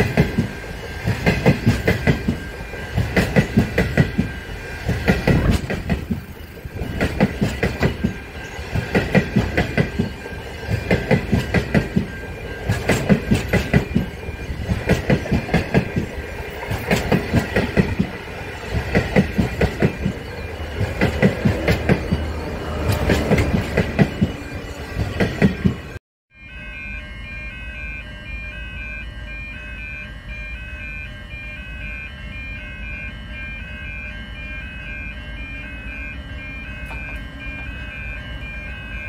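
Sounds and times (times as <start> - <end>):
train wheels clickety-clack: 0.0 - 26.0.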